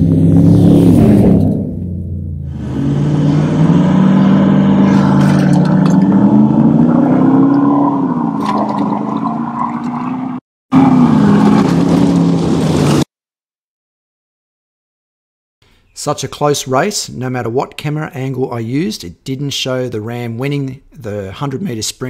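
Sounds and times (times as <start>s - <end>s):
trucks accelerating hard: 0.0s - 13.1s.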